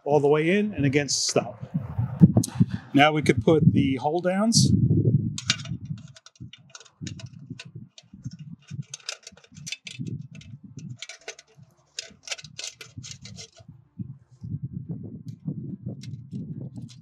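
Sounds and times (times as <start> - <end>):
metallic clicks and taps: 5.4 - 13.6.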